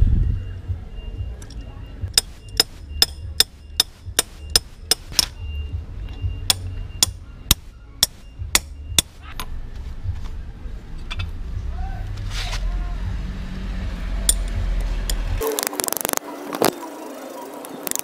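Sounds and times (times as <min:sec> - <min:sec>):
wrench striking metal socket: 0:02.2 - 0:05.4.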